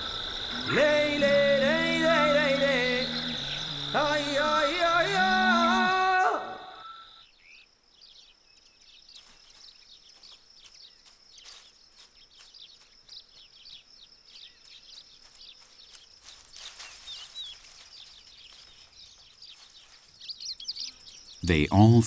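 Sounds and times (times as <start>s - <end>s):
insects buzzing high-pitched: 0.0s - 7.4s
bird chirps: 12.3s - 22.0s.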